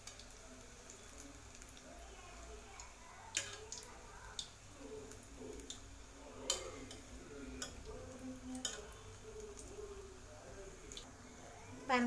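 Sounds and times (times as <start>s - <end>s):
deep-frying in hot oil: 0.0s - 12.0s
metal skewer clicking on pan: 3.3s - 3.8s, 6.4s - 7.8s, 8.5s - 8.9s.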